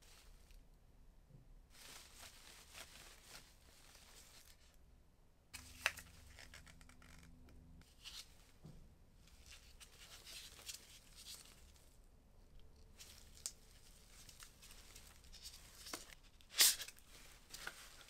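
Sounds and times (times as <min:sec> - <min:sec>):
paper and plastic rustling: 0:01.7 - 0:04.8, 0:09.2 - 0:12.0, 0:12.9 - 0:18.0.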